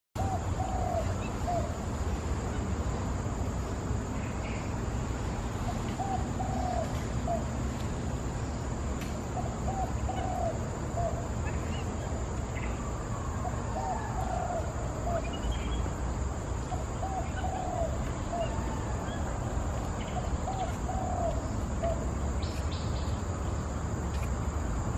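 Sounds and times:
dove cooing: 0:00.2 - 0:01.8, 0:05.7 - 0:07.6, 0:09.4 - 0:11.8, 0:13.2 - 0:15.5, 0:16.7 - 0:19.3, 0:20.2 - 0:22.1
steady high hiss: 0:00.2 - 0:24.9
bird chirps: 0:13.5 - 0:15.9, 0:16.6 - 0:19.3, 0:20.0 - 0:23.2.

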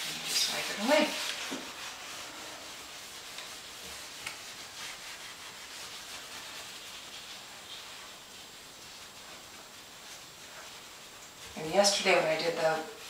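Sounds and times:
steel wool rubbing on wood: 0:00.0 - 0:13.0.

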